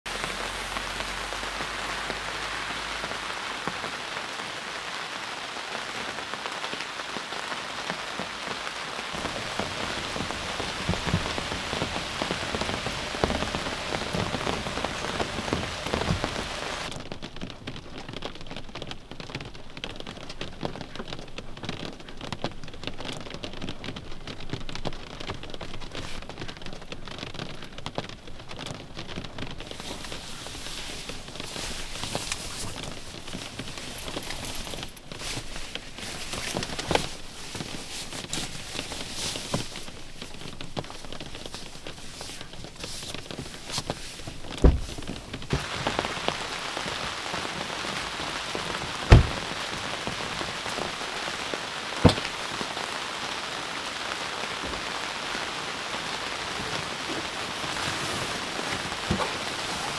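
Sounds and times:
heavy rain hissing: 0.1 - 17.0, 29.3 - 59.9
raindrops pattering: 0.1 - 59.9.

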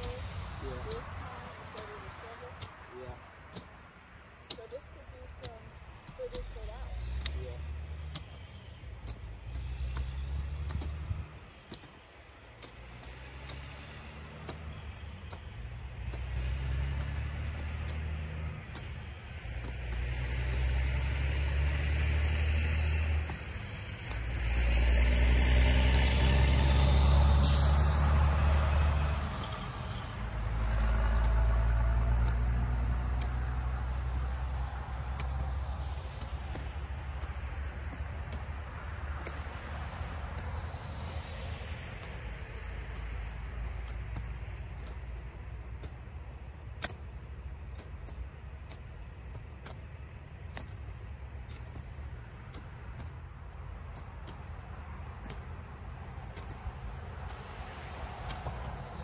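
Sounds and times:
hoes chopping into soil: 0.0 - 59.0
deep rumble: 12.6 - 59.0.

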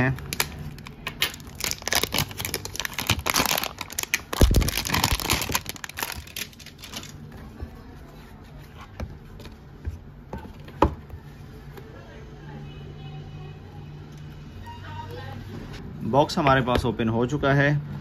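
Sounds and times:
plastic wrap crinkling: 0.0 - 7.3.

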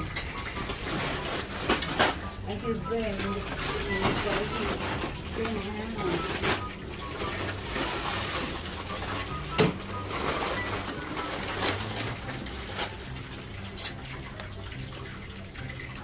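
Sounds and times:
fritters sizzling in hot oil: 12.2 - 16.0.

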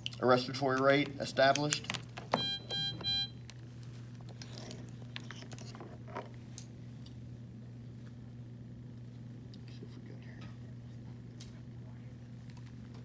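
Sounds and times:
monitor short beeps: 2.4 - 3.4.

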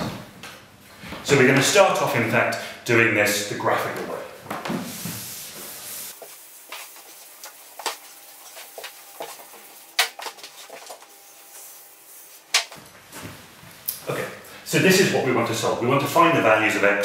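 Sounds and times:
eraser wiping chalkboard: 4.7 - 12.7.

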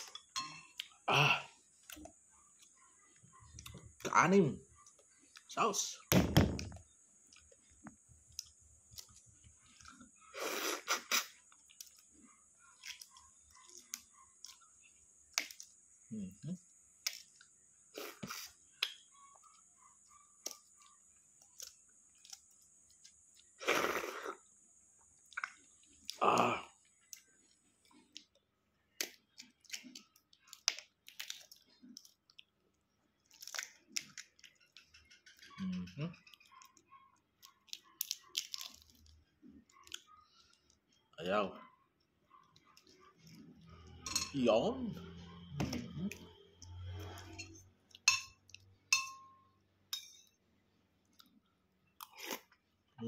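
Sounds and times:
chewing and smacking: 1.7 - 4.1, 6.8 - 15.8, 17.0 - 23.6, 25.0 - 26.2, 26.8 - 35.6, 36.2 - 41.2, 42.0 - 44.0, 51.0 - 52.7
wet slurp: 10.3 - 11.4, 23.6 - 24.4, 52.0 - 52.6
eggshell clicks and crackles: 12.7 - 15.9, 17.0 - 17.6, 25.1 - 41.0
eggshell cracking: 28.9 - 32.5, 33.2 - 35.4, 37.4 - 40.2.

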